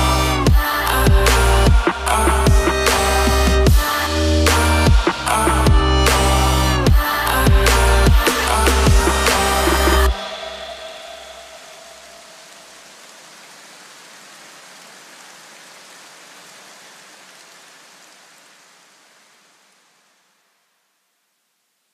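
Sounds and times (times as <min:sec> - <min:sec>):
low bass hum: 0:00.0 - 0:12.2
steady hiss: 0:00.0 - 0:21.9.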